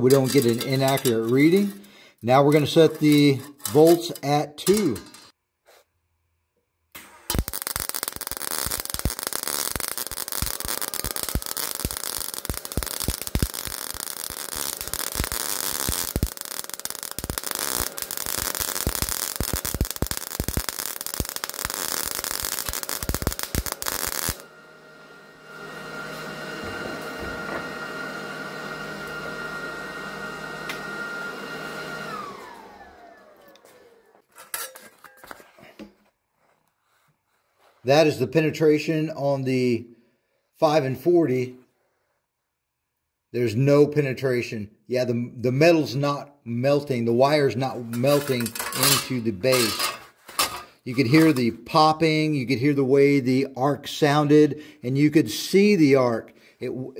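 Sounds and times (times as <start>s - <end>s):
welding arc crackling and popping: 7.0s - 24.4s.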